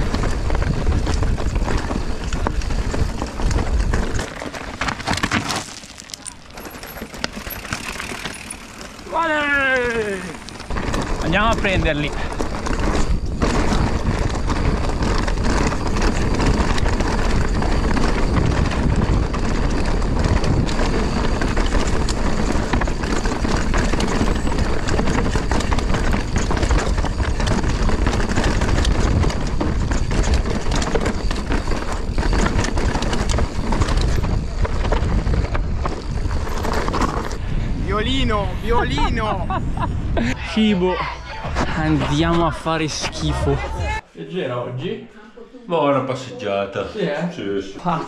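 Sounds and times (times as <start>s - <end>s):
wind buffeting microphone: 0.0s - 4.8s, 9.0s - 44.0s
stones and bike parts knocking: 0.0s - 37.4s
bike tyres rumbling over rocks: 0.0s - 44.0s.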